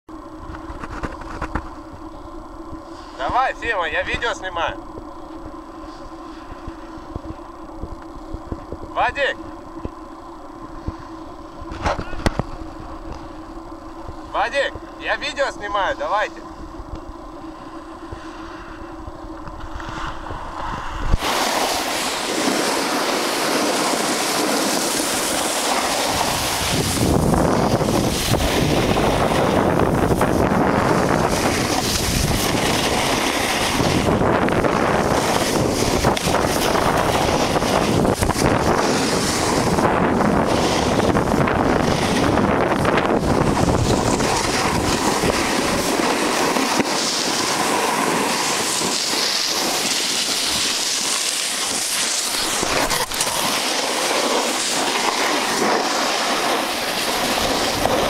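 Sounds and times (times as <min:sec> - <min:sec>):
wind buffeting microphone: 0:19.0 - 0:49.8
skis sliding over snow: 0:19.8 - 0:58.0.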